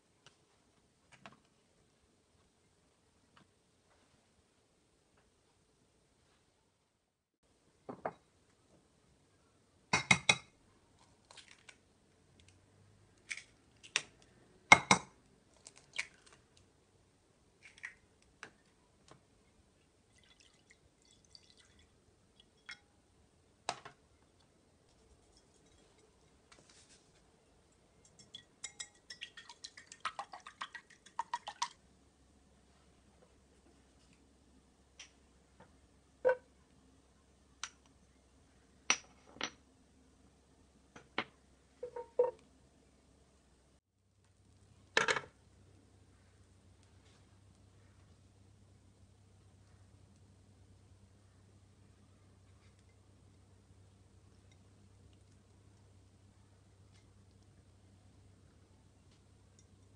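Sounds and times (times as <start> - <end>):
whisk clinking in bowl: 28.0 - 29.5.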